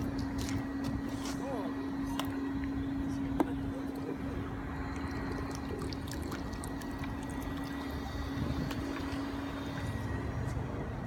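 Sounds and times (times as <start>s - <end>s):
steady low hum: 0.0s - 11.0s
water splashing and dripping: 4.9s - 9.2s.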